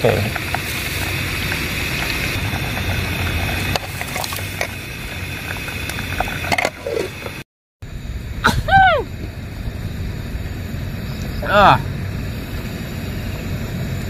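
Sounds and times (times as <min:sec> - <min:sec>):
broth simmering in a pot: 0:00.0 - 0:07.4.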